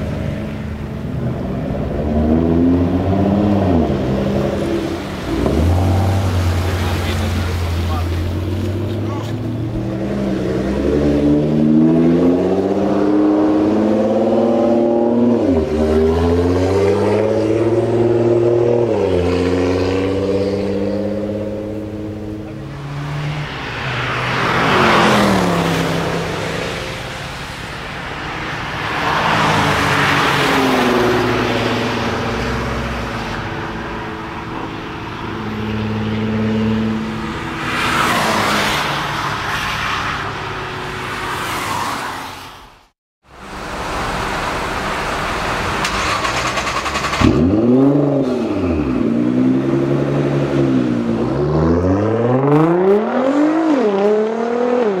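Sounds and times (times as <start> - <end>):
car engines accelerating: 0.0 - 42.6, 43.3 - 55.0
engine revving: 1.8 - 26.7, 44.2 - 55.0.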